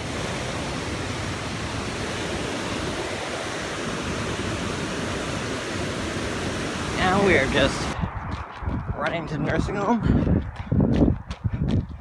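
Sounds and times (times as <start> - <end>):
river rushing over rocks: 0.0 - 8.0.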